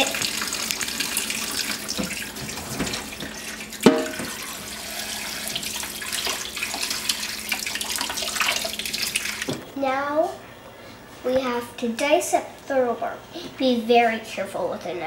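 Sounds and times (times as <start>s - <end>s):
faucet running into a sink: 0.0s - 9.6s.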